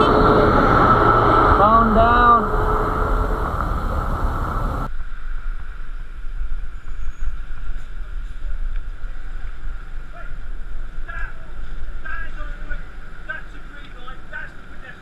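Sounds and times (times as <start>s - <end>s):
motorcycle riding in traffic: 0.0s - 4.9s
wind buffeting microphone: 0.0s - 15.0s.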